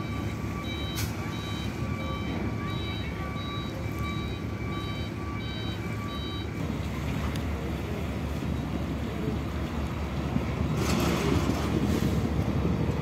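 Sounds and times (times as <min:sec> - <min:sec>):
truck reversing alarm beeping: 0:00.0 - 0:10.2
truck engine rumble: 0:00.0 - 0:13.0.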